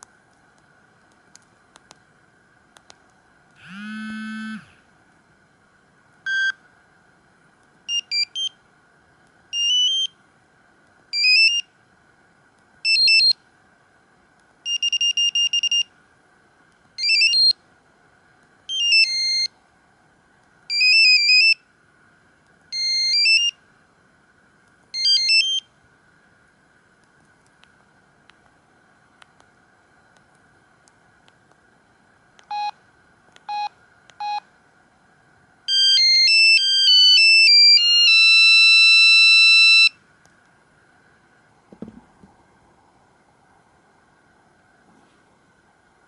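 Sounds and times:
buzzy phone tone: 3.6s - 4.8s, 35.7s - 39.9s.

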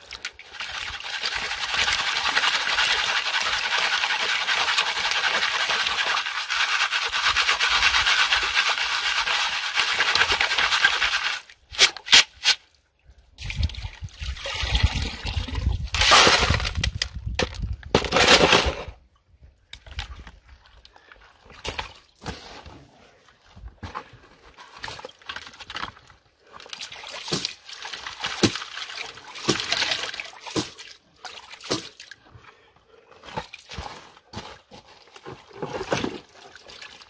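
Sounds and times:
muddy water splashing into basin: 13.4s - 16.1s, 24.8s - 32.2s.

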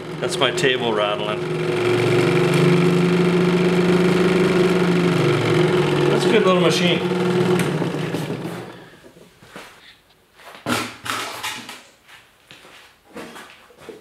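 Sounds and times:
scroll saw running: 0.0s - 9.2s.

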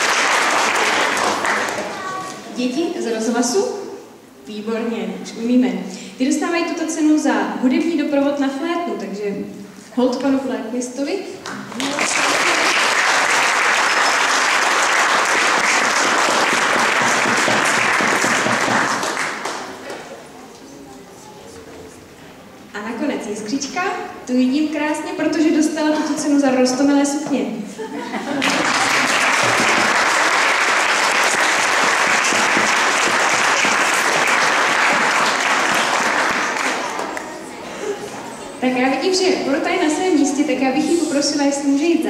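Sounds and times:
audience applauding: 0.0s - 2.3s, 11.7s - 20.1s, 28.3s - 37.5s.

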